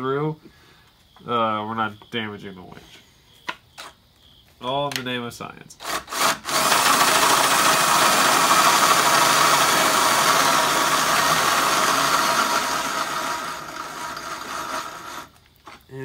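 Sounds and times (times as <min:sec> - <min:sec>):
cordless drill drilling metal: 0:05.8 - 0:15.4.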